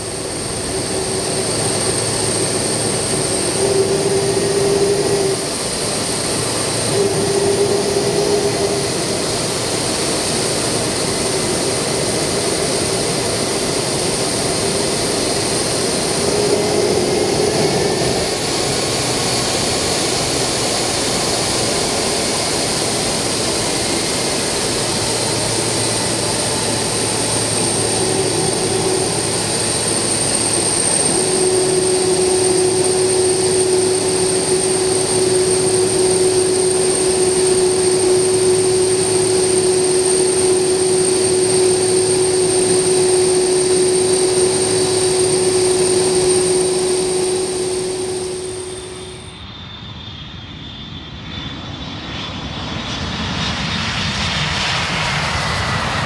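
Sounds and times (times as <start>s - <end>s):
low engine hum: 0.0s - 49.4s
jet engines whining: 0.0s - 56.0s.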